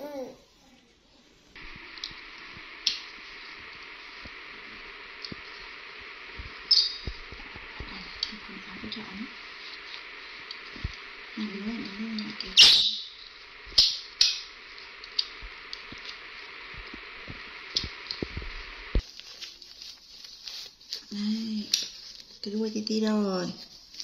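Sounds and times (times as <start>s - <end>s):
steady hiss: 0.0s - 24.0s
cloth rustling: 19.0s - 24.0s.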